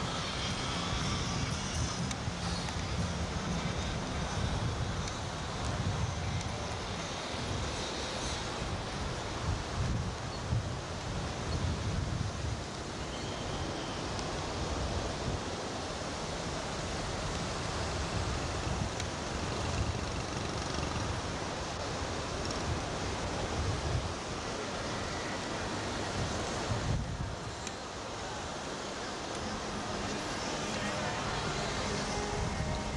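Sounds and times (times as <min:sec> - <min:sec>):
wind buffeting microphone: 0:00.0 - 0:12.8, 0:25.6 - 0:27.7.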